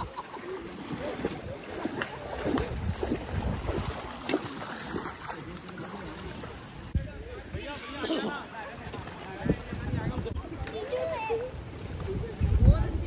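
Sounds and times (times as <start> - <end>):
paddles splashing in water: 0.0 - 7.0
water sloshing: 0.0 - 7.0.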